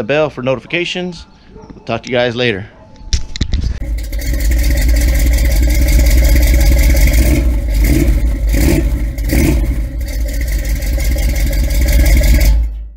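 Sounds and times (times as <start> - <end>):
car engine running: 3.8 - 12.9.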